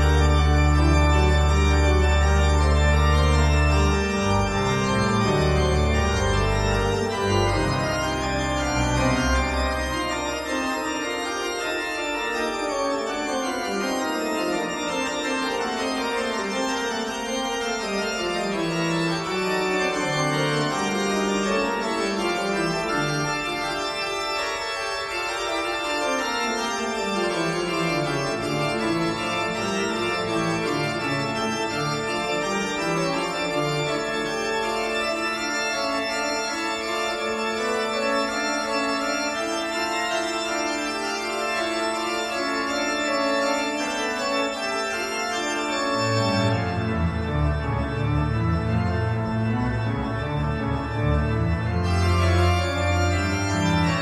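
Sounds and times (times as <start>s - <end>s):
deep organ bass notes: 0.0s - 24.0s, 46.0s - 54.0s
organ chords: 0.0s - 54.0s.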